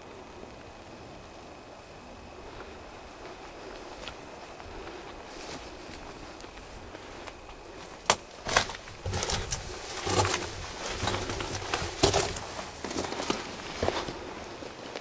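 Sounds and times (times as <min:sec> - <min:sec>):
footsteps crunching dry leaves: 0:02.5 - 0:14.4.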